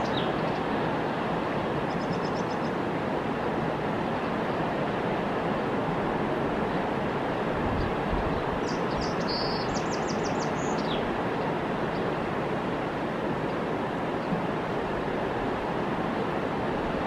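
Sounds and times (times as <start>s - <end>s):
river rushing: 0.0s - 17.0s
small bird chirping: 8.6s - 11.0s.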